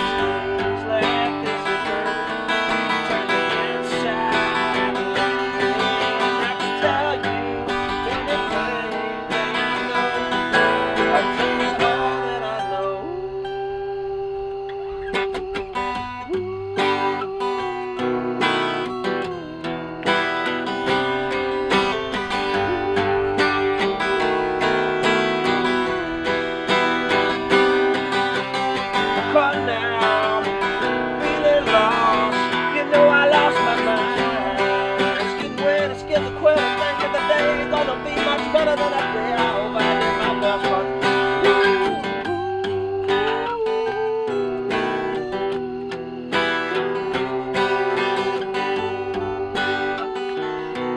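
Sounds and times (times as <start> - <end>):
acoustic guitars playing: 0.0 - 50.9.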